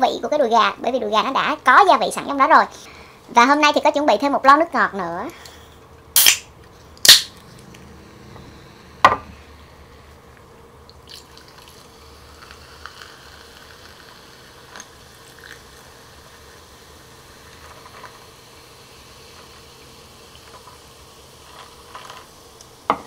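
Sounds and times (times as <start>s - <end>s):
drink can opening with hiss: 6.2s - 7.5s, 11.1s - 15.7s, 17.5s - 23.0s
soda poured over ice fizzing: 10.9s - 22.4s.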